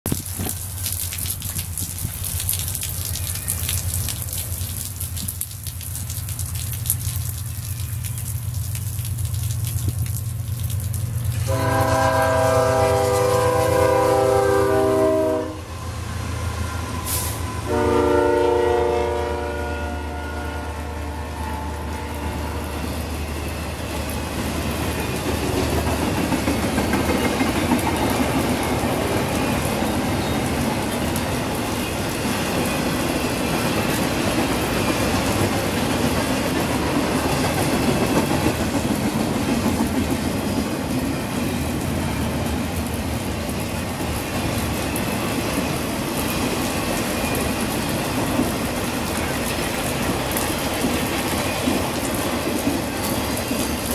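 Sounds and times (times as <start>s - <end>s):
freight train wheels rumbling on rails: 11.0s - 53.9s.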